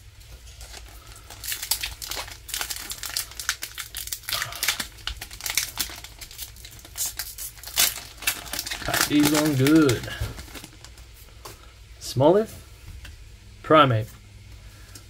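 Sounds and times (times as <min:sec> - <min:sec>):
foil wrapper crinkling: 0:00.2 - 0:11.3.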